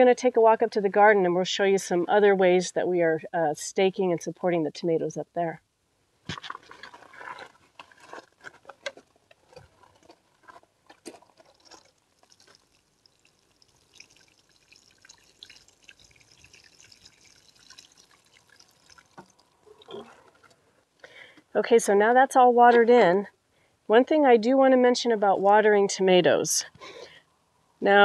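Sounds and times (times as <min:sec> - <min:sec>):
water patter on soil: 0:06.3 - 0:20.4.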